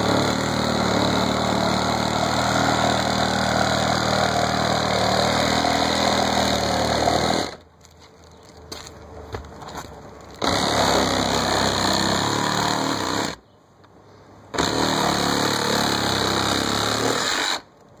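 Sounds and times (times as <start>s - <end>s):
reciprocating saw cutting roof: 0.0s - 7.6s, 10.4s - 13.4s, 14.5s - 17.7s.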